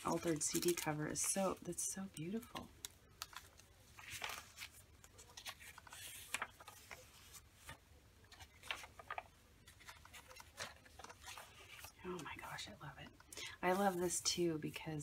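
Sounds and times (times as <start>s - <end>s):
paper pages rustling: 0.0s - 1.6s, 2.2s - 12.3s.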